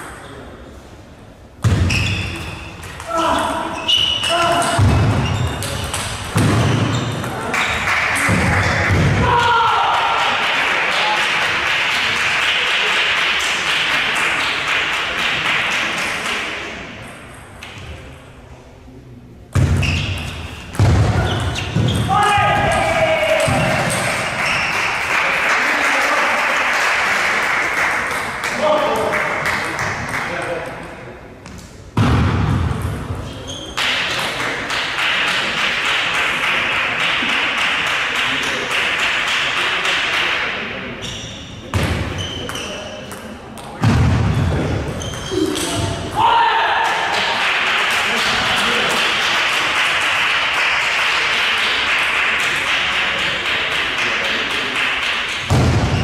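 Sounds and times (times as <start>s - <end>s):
people clapping: 7.3s - 16.7s, 22.2s - 30.6s, 33.8s - 40.8s, 46.7s - 55.6s.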